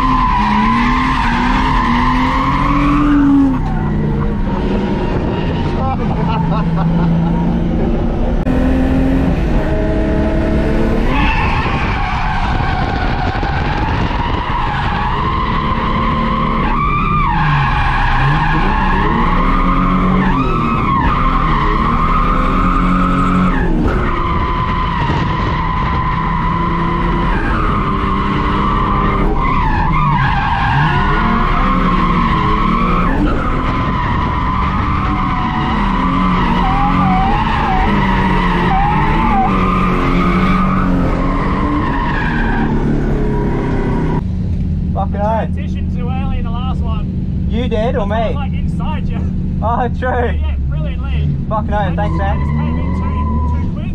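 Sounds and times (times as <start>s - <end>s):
tyres skidding on tarmac: 0.0s - 7.5s, 11.0s - 44.2s, 50.4s - 53.9s
car engine at high revs: 0.0s - 45.0s, 45.8s - 53.9s.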